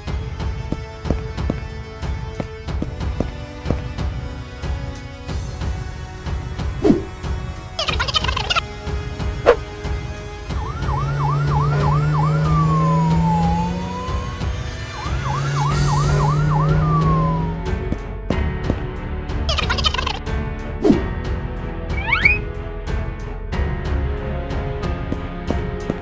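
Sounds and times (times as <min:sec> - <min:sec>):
squeaky cartoon voice: 0:07.8 - 0:08.6, 0:19.5 - 0:20.2, 0:21.9 - 0:22.4
fire engine siren: 0:10.4 - 0:17.9.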